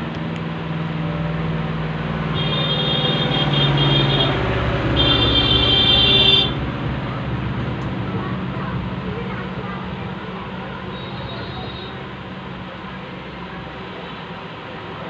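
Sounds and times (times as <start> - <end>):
steady low traffic hum: 0.0 - 15.0
vehicle passing with rumble: 0.0 - 15.0
high-pitched car horn: 2.3 - 4.4, 5.0 - 6.6.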